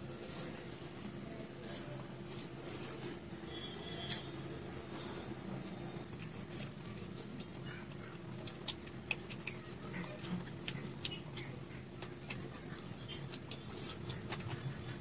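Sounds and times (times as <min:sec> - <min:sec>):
person chewing with mouth clicks: 0:06.0 - 0:15.0.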